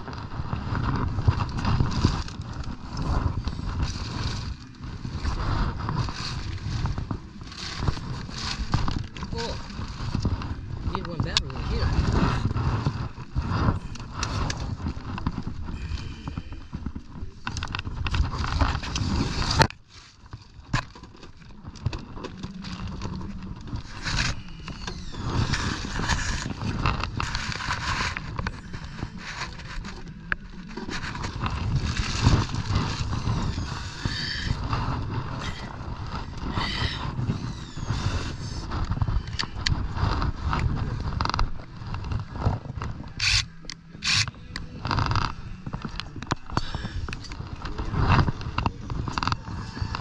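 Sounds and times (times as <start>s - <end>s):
plastic tarp crinkling: 0.0s - 43.7s.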